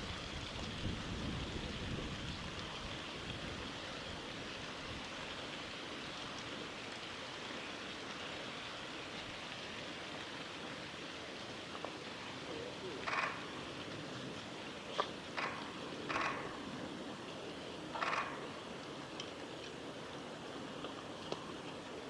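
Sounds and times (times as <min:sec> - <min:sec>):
wind rumble on microphone: 0:00.0 - 0:05.4
river water rushing: 0:00.0 - 0:22.0.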